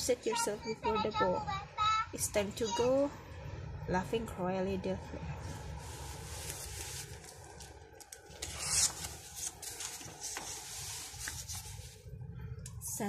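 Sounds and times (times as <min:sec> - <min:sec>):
book pages turning: 0:05.5 - 0:12.1.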